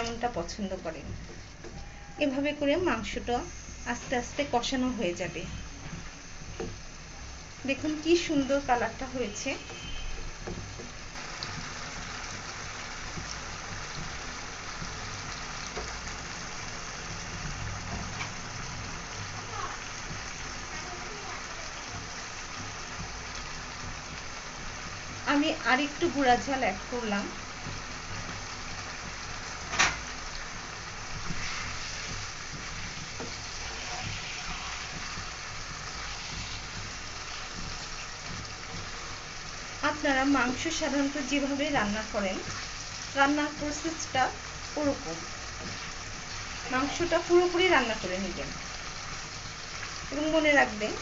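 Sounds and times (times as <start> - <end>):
meat sizzling in hot oil: 0.0 - 51.0
spatula stirring: 31.1 - 39.6.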